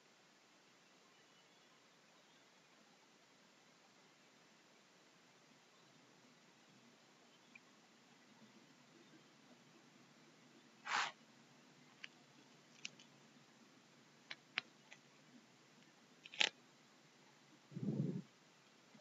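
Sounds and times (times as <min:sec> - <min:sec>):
person sniffing: 0:10.8 - 0:11.2
computer mouse clicks: 0:16.2 - 0:16.6.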